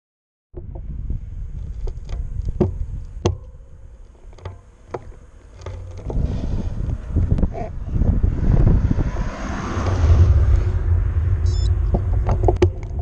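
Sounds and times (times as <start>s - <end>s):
bicycle rolling rumble: 0.6s - 13.0s
clicks and knocks from bike: 1.6s - 6.2s.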